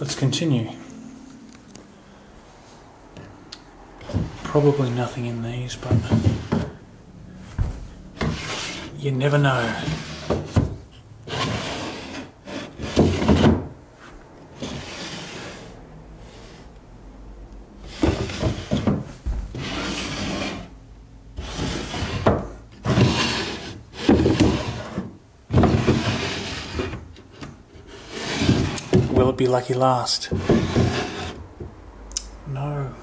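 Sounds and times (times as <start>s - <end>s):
wooden drawers sliding open and shut: 4.0s - 5.0s, 5.8s - 6.8s, 7.5s - 13.8s, 14.6s - 16.6s, 17.8s - 20.7s, 21.4s - 29.5s, 30.2s - 31.8s.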